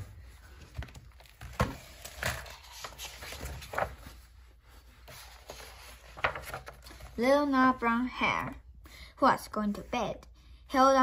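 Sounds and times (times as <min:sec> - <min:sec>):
book pages turning: 0:00.0 - 0:07.5.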